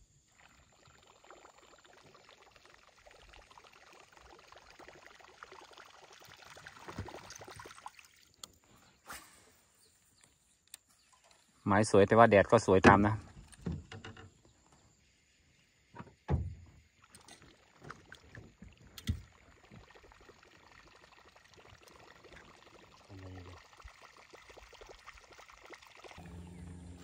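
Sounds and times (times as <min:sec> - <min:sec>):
faint water hiss: 0:00.0 - 0:12.0, 0:14.4 - 0:27.0
low steady hum: 0:26.2 - 0:27.0.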